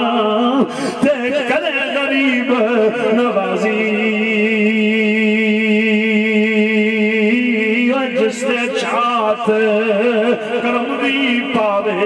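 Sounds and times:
man singing a long note: 0:00.0 - 0:12.0.

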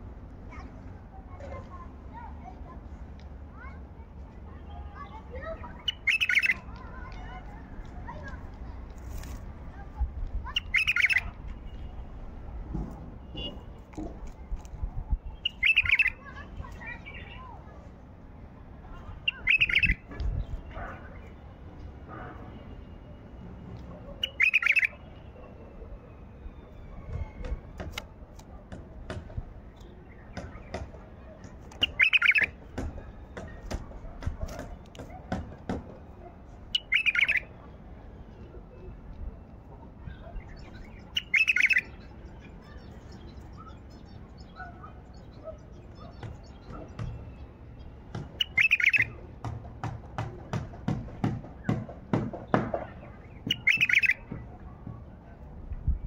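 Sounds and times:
bird warbling song: 0:05.0 - 0:07.3, 0:10.4 - 0:11.9, 0:15.1 - 0:17.6, 0:19.0 - 0:21.4, 0:24.1 - 0:25.5, 0:31.7 - 0:33.7, 0:36.7 - 0:38.5, 0:39.2 - 0:49.3, 0:52.5 - 0:54.4
sharp bird clicks: 0:05.8 - 0:07.2, 0:10.5 - 0:11.6, 0:15.4 - 0:16.2, 0:19.2 - 0:20.4, 0:23.8 - 0:24.9, 0:31.6 - 0:32.6, 0:36.7 - 0:37.5, 0:40.9 - 0:42.0, 0:48.2 - 0:49.2, 0:52.8 - 0:54.4
bulbul warbling song: 0:05.9 - 0:06.7, 0:10.6 - 0:11.4, 0:15.4 - 0:16.4, 0:19.3 - 0:20.0, 0:31.8 - 0:32.6, 0:36.7 - 0:37.5, 0:40.1 - 0:42.1, 0:48.4 - 0:49.2, 0:53.4 - 0:54.3.

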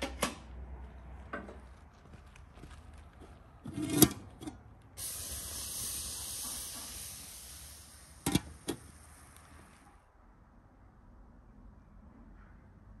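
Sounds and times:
steam hissing: 0:05.0 - 0:10.0.

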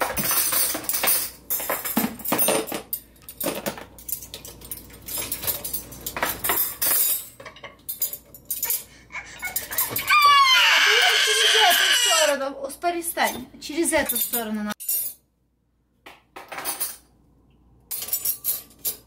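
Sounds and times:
metal cutlery clinking: 0:00.0 - 0:10.1, 0:17.9 - 0:19.0
toddler whining cry: 0:09.0 - 0:12.4.

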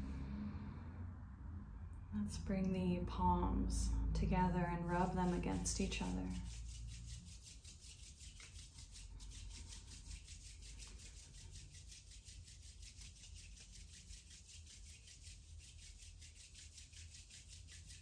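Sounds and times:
hands rubbing together: 0:04.8 - 0:18.0.

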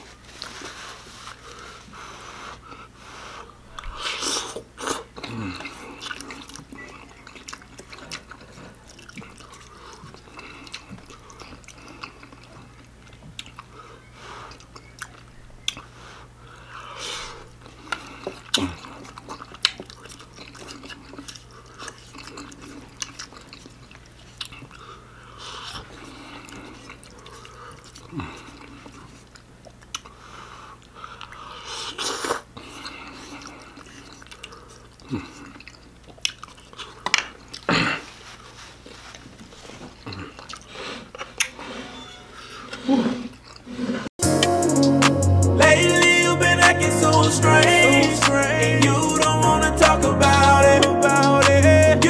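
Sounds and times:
low electrical hum: 0:00.0 - 0:43.8
chewing and slurping noodles: 0:00.4 - 0:44.1
person humming: 0:44.2 - 0:52.0.

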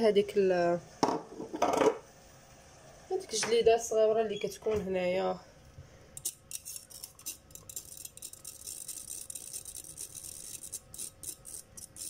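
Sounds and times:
fork scraping a metal sieve: 0:06.2 - 0:12.0.

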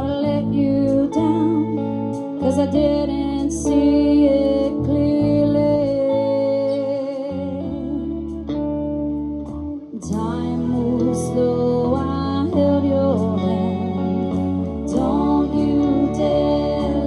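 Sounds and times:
electric guitar: 0:00.0 - 0:17.0
live band playing slow song: 0:00.0 - 0:17.0.

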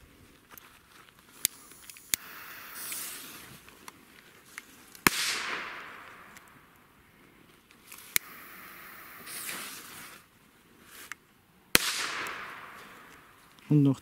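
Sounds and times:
fuse hiss: 0:01.4 - 0:03.8, 0:07.9 - 0:10.3
sharp clicks: 0:01.4 - 0:06.8, 0:07.7 - 0:09.6
firecracker bang with echo: 0:05.1 - 0:06.3, 0:11.8 - 0:13.0.

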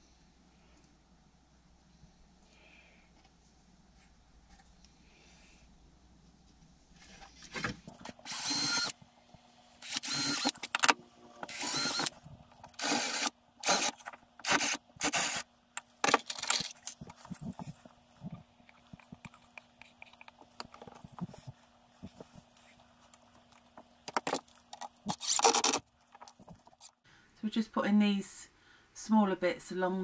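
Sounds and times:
cordless drill drilling into wood: 0:08.1 - 0:09.0, 0:09.8 - 0:10.8, 0:11.4 - 0:15.4.

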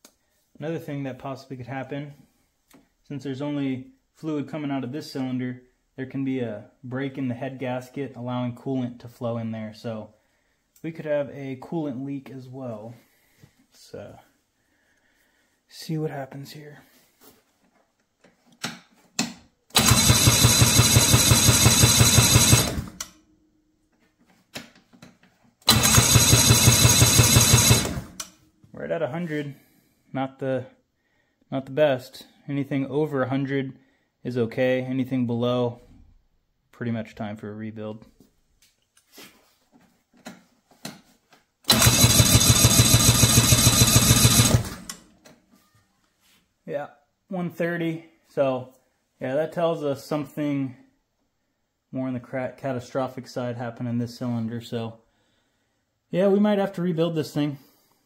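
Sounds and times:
engine cranking with starter: 0:19.7 - 0:23.1, 0:25.7 - 0:28.3, 0:41.7 - 0:45.0.

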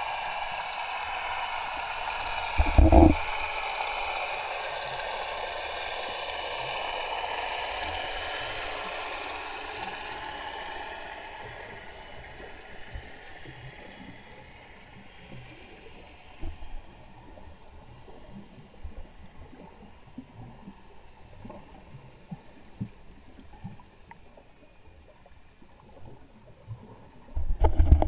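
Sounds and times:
underwater hiss: 0:00.0 - 0:21.8.

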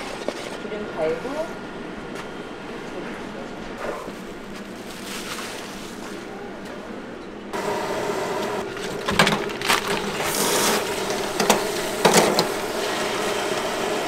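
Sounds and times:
plastic bag crinkling: 0:08.6 - 0:11.4.

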